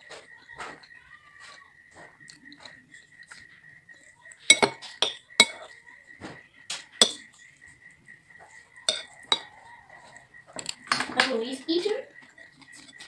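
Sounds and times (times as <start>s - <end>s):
cutlery clinking against ceramic bowl: 4.5s - 5.8s, 7.0s - 7.4s, 8.9s - 9.6s, 12.6s - 13.0s.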